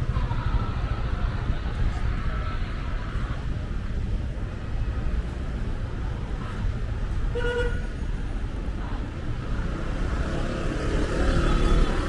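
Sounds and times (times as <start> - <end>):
rumble of slow-moving cars: 0.0 - 12.0.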